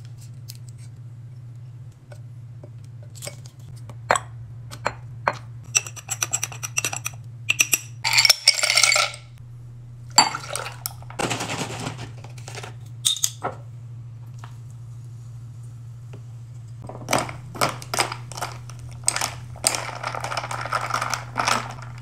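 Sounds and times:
low steady hum: 0:00.0 - 0:22.0
glass and bottle clinks: 0:07.5 - 0:09.2
ice cubes clattering into glass: 0:08.1 - 0:09.3, 0:16.9 - 0:22.0.

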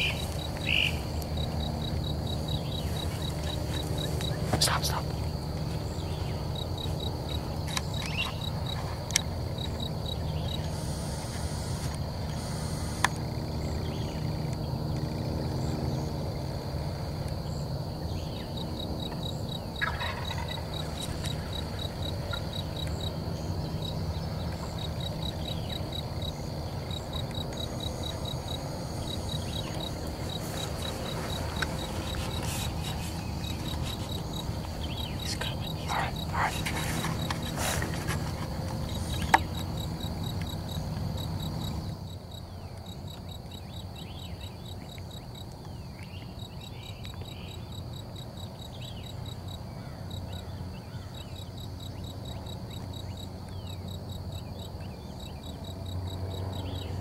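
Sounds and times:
insects chirping: 0:00.0 - 0:57.0
turkey gobbling: 0:19.8 - 0:21.0.

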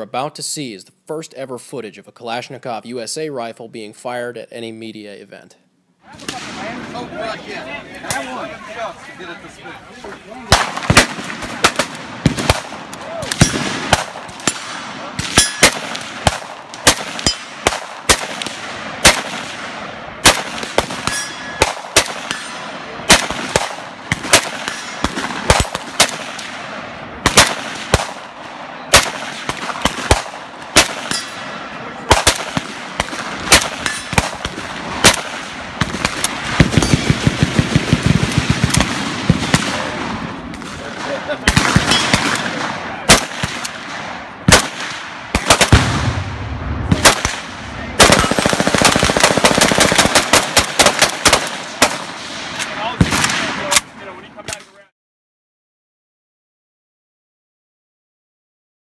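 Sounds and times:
rifle shots: 0:06.2 - 0:07.1, 0:10.4 - 0:54.6
distant gunfire: 0:10.5 - 0:53.8.

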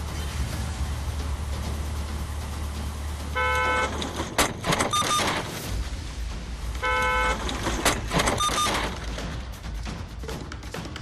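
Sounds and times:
car horn blaring: 0:03.3 - 0:04.0, 0:06.8 - 0:07.5.

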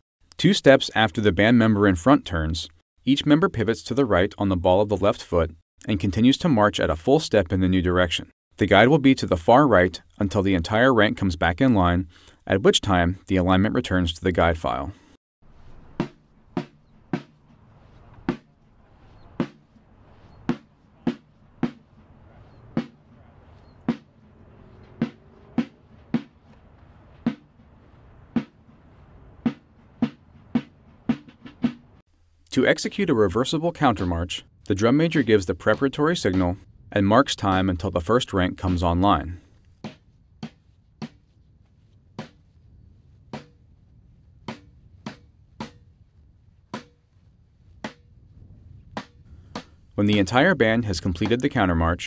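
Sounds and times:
drum beats at marching tempo: 0:16.0 - 0:18.6, 0:19.3 - 0:26.6, 0:27.2 - 0:28.6, 0:29.4 - 0:32.0, 0:35.2 - 0:36.6, 0:42.2 - 0:42.5, 0:49.0 - 0:51.8.

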